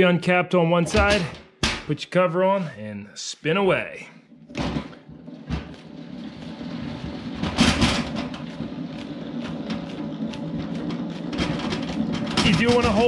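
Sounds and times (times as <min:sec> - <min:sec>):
extractor basket rumbling: 0:04.4 - 0:13.0
crank gearing whirring: 0:04.9 - 0:13.0.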